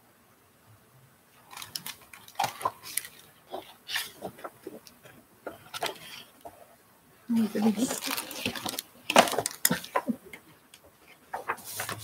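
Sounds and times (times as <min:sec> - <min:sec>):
pages rustling: 0:01.4 - 0:06.6, 0:07.6 - 0:12.0.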